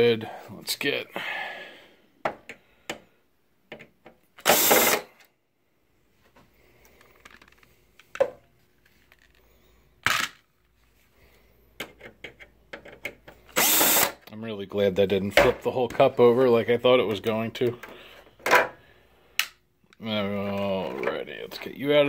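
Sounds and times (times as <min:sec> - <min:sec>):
cordless drill running: 0:04.4 - 0:05.1, 0:13.5 - 0:14.2.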